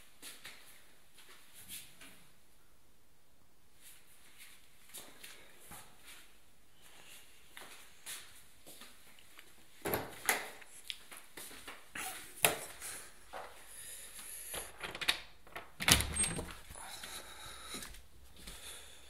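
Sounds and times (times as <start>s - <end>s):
footsteps: 3.8s - 14.7s, 16.6s - 18.8s
door opening: 14.5s - 16.8s.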